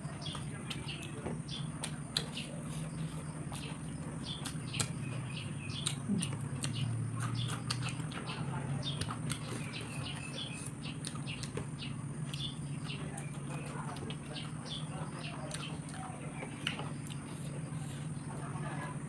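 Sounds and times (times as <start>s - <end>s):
chewing: 0.0s - 19.0s
steady low hum: 0.0s - 19.0s
lip smacks: 1.8s - 14.4s.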